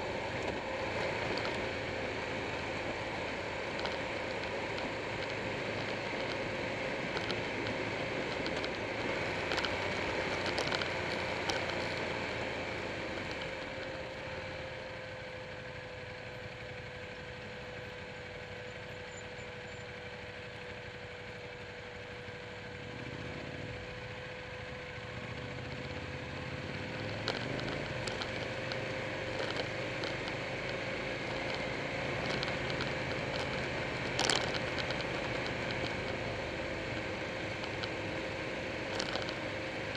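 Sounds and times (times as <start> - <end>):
motorcycle engine running: 0.0 - 39.9
road noise: 0.0 - 39.9
sharp ticks: 0.3 - 14.0, 25.4 - 39.9.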